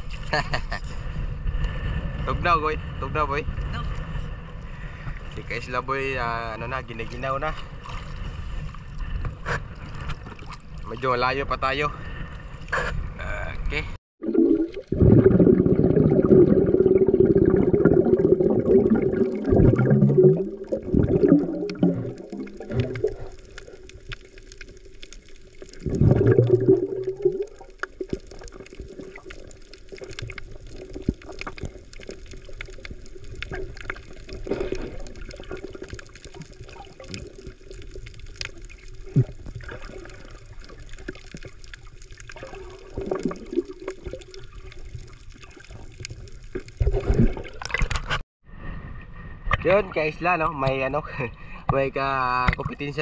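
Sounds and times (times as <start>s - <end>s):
sea water sloshing around wading: 7.1s - 11.2s, 14.5s - 48.2s.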